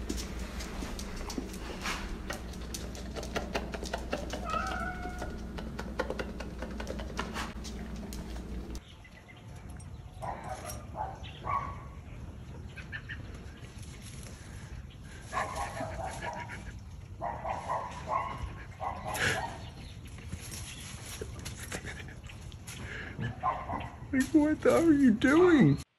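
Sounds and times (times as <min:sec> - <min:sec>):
steady low hum: 0:00.0 - 0:08.8
scattered clicks: 0:00.1 - 0:08.8
dog whining: 0:04.0 - 0:05.8.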